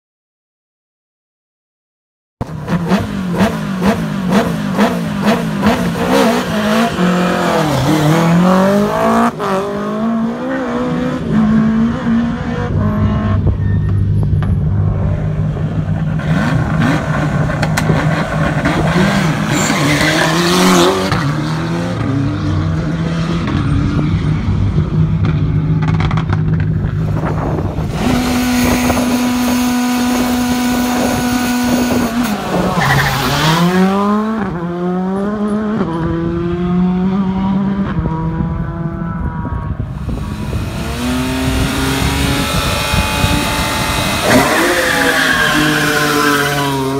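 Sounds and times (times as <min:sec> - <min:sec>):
rally car engines revving: 0:02.4 - 0:46.9.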